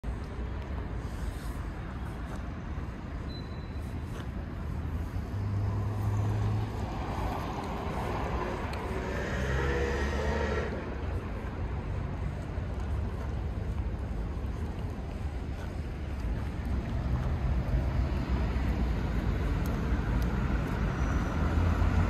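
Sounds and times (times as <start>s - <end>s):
cars passing: 0.0s - 22.0s
loud vehicle passing: 5.2s - 12.0s, 16.7s - 22.0s.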